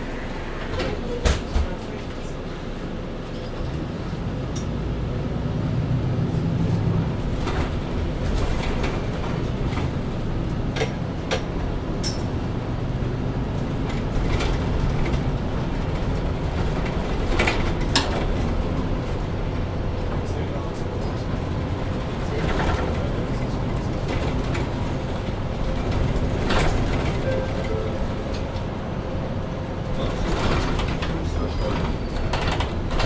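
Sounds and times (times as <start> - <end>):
bus diesel engine running: 0.0 - 33.0.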